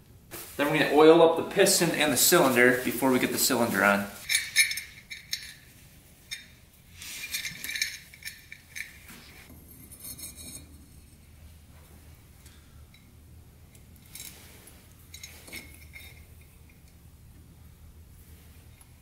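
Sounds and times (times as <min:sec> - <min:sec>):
light metallic clinks: 0:04.2 - 0:06.6, 0:07.2 - 0:09.1, 0:12.4 - 0:17.0.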